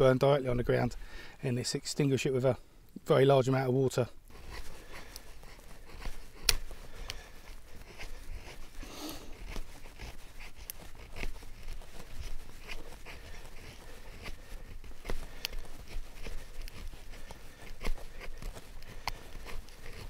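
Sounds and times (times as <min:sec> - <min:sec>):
knife scraping wood: 0:04.3 - 0:20.0.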